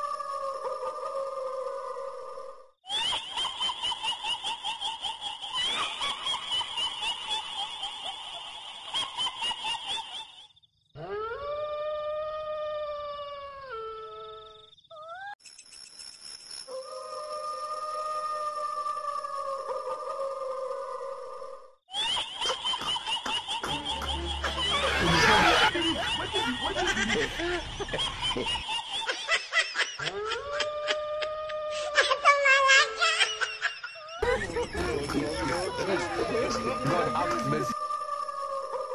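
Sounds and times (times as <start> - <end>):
laugh track snickering and giggling: 2.9 - 10.5, 21.9 - 37.8
frightened yelps: 24.0 - 28.6.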